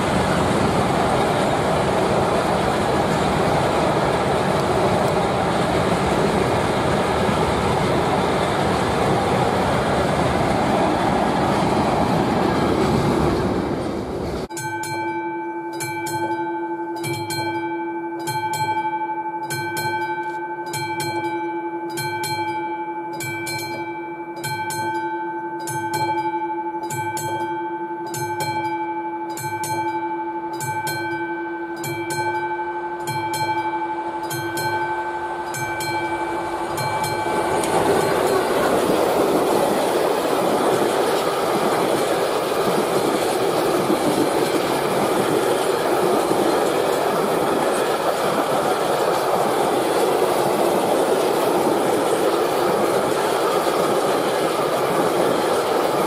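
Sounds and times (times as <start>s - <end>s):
freight train rolling past: 0.0s - 14.5s, 33.0s - 56.0s
electric locomotive pulsing hum: 0.0s - 56.0s.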